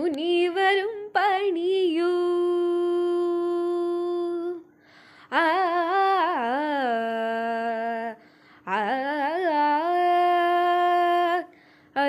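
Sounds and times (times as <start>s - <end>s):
girl singing devotional song: 0.0s - 12.0s
singer breathing: 4.8s - 5.3s, 8.2s - 8.7s, 11.5s - 12.0s.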